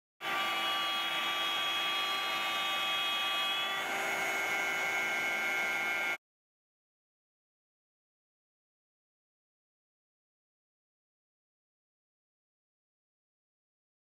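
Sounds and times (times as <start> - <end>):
router spindle cutting wood: 0.2 - 6.2.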